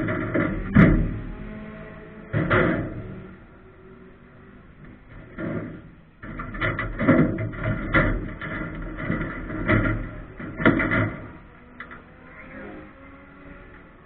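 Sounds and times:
knocks and bangs in cockpit: 0.0s - 1.2s, 2.3s - 3.2s, 4.9s - 11.4s
race car engine drone: 0.0s - 14.0s.

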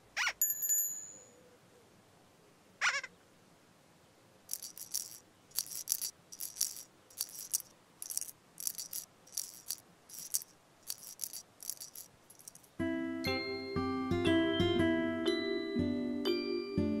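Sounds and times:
rattle shaking: 4.5s - 12.8s.

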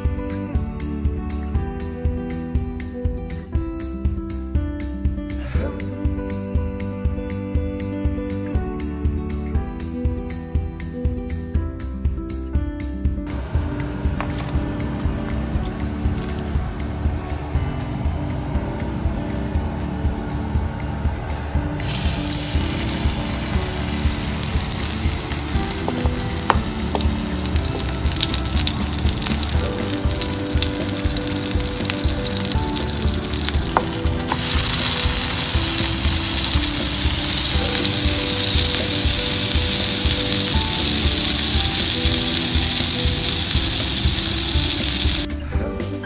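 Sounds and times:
oil spatter crackling: 15.6s - 16.6s, 21.8s - 45.3s
patty sizzling in frying pan: 21.8s - 45.3s.

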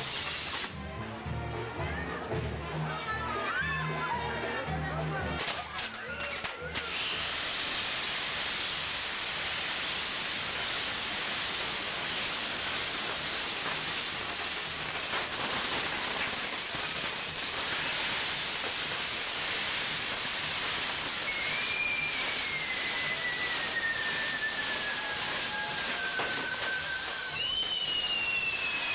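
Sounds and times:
hiss of spraying sparks: 0.0s - 0.8s, 5.4s - 28.9s
high falling whistle: 21.1s - 28.9s.

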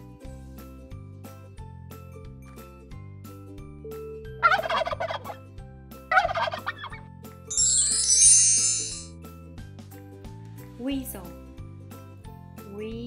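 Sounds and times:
soft background music: 0.0s - 13.0s
turkey gobbling: 4.4s - 5.4s, 6.1s - 7.0s.

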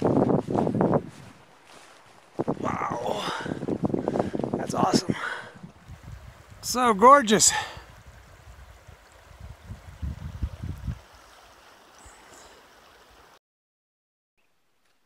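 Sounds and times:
river rushing: 1.3s - 10.4s.

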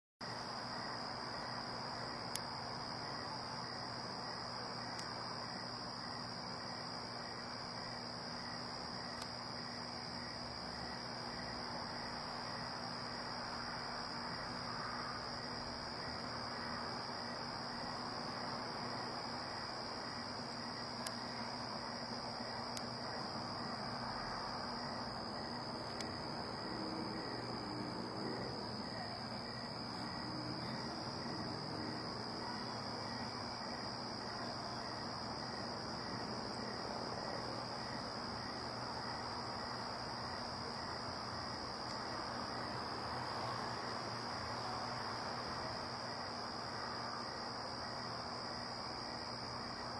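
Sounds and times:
crickets trilling: 0.2s - 49.9s.

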